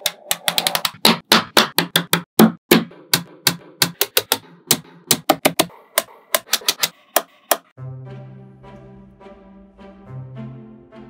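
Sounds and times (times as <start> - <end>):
magnetic balls clicking together: 0.0 - 1.1.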